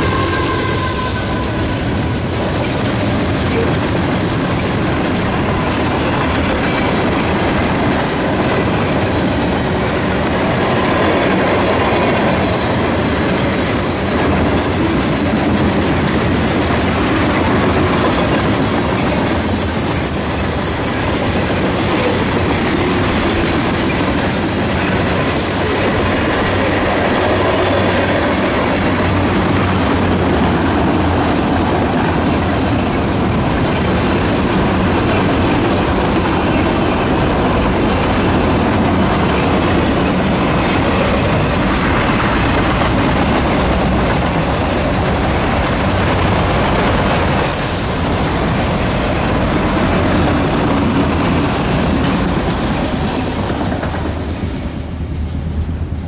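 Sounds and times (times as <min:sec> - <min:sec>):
high-pitched wheel squeals: 0:00.0 - 0:02.3
wheels clattering on rails: 0:00.0 - 0:54.8
freight train rumbling past: 0:00.0 - 0:56.0.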